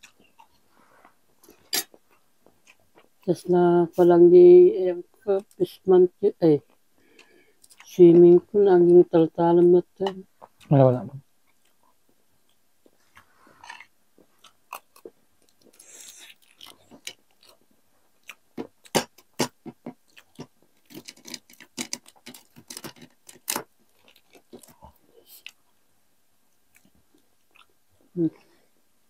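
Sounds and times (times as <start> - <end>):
chewing with clicks: 6.7 - 7.9, 11.4 - 25.8, 26.7 - 27.8.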